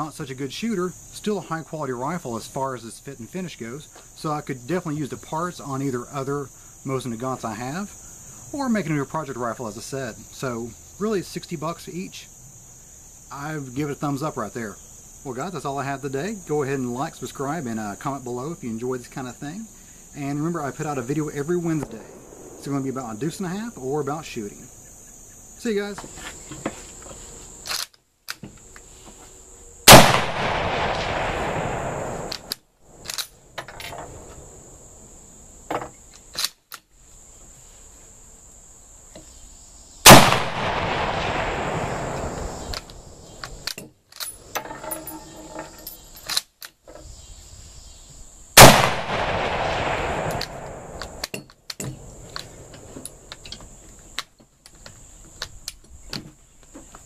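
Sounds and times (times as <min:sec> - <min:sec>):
rifle shots ringing out: 0:29.8 - 0:32.4, 0:40.1 - 0:42.7, 0:48.6 - 0:51.2
rifle bolt metallic clacks: 0:32.3 - 0:34.0.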